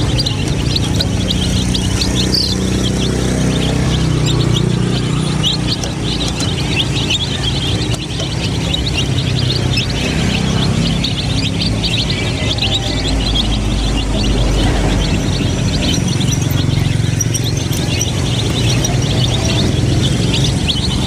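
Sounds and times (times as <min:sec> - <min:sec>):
chicks peeping: 0:00.0 - 0:21.0
low steady rumble: 0:00.0 - 0:21.0.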